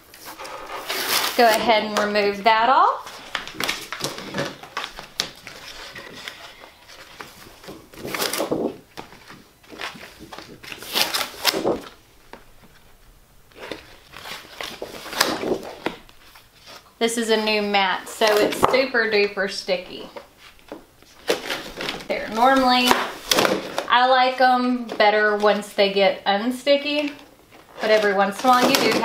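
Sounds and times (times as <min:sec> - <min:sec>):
plastic sheets rustling and crackling: 0:00.0 - 0:25.7, 0:26.8 - 0:29.0.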